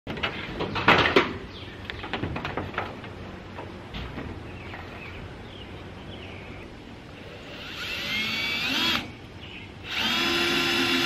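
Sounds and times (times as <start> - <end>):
birds chirping: 0.2 - 11.0.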